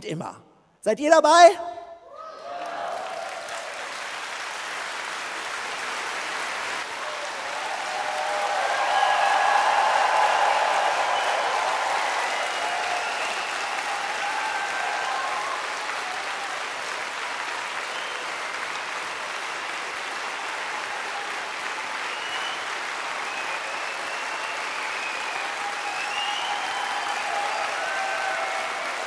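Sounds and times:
voices cheering: 2.1s - 3.9s, 6.9s - 17.0s, 20.3s - 29.0s
audience applauding: 2.4s - 29.0s.

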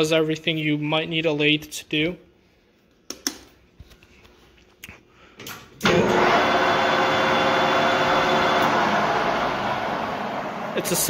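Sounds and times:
lathe running with loud whir: 5.8s - 11.0s.

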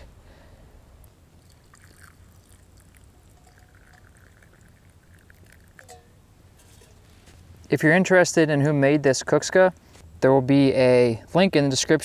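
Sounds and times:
water trickling into cup: 1.4s - 7.0s.

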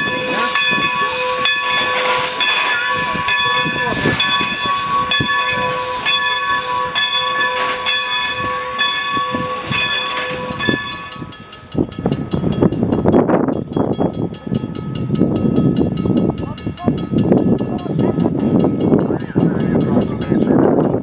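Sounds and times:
crossing signal bell ringing: 0.0s - 21.0s
low rumble of wind: 0.0s - 21.0s
railroad bell ringing: 0.0s - 21.0s.

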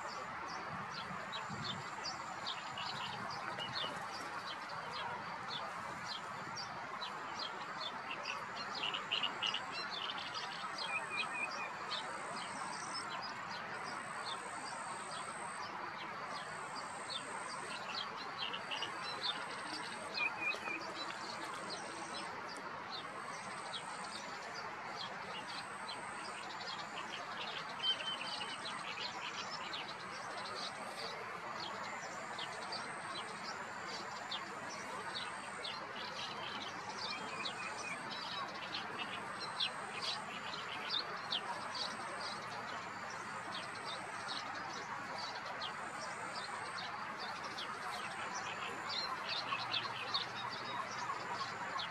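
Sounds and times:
steady background noise: 0.0s - 51.9s
birds chirping: 16.4s - 51.9s.

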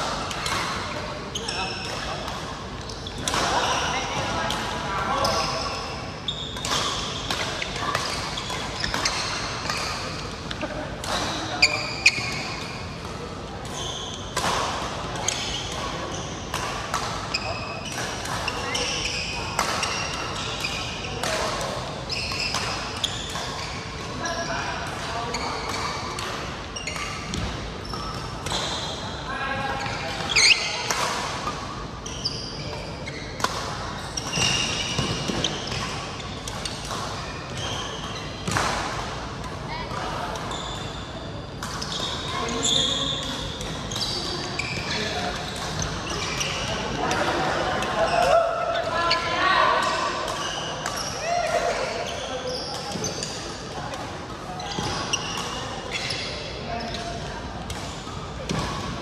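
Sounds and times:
shoes squeaking on court floor: 0.0s - 38.9s, 39.7s - 59.0s
racket hitting shuttlecock: 6.6s - 23.6s, 30.1s - 31.6s, 33.4s - 40.5s, 58.5s - 59.0s
rackets hitting shuttlecocks: 33.3s - 40.5s.

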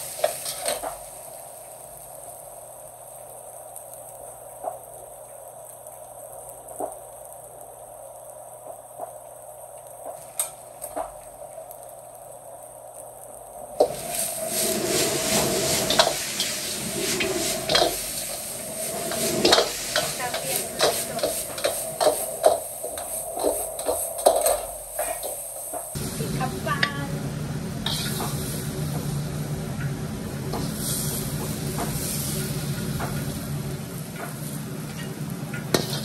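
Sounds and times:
kitchen hum: 0.0s - 3.5s, 9.7s - 36.0s
food sizzling in a wok: 0.0s - 29.6s, 30.4s - 36.0s
metal spatula scraping pan: 14.0s - 24.7s.

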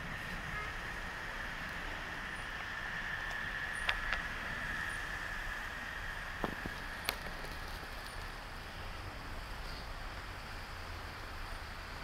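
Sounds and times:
low engine hum: 0.0s - 12.0s
tyres hissing through slush: 0.0s - 12.0s.

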